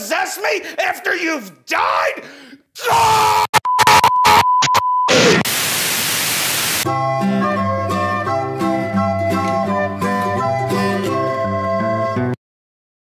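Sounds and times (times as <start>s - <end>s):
test-tone beep: 3.6s - 5.2s
choppy bursts of static: 5.3s - 6.9s
white-noise hiss: 5.5s - 6.9s
light plucked-string music: 6.9s - 12.4s.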